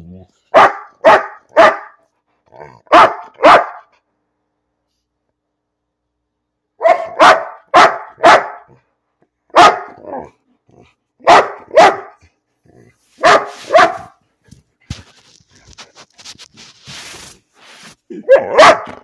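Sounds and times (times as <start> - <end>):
dog barking: 0.5 - 2.0, 2.8 - 4.0, 6.8 - 8.8, 9.5 - 10.4, 11.2 - 12.3, 13.2 - 14.2, 18.2 - 19.0.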